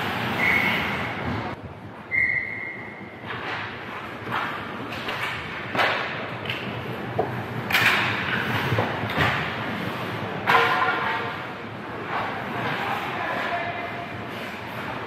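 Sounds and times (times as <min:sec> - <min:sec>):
hockey sticks clacking on puck: 0:03.2 - 0:15.0.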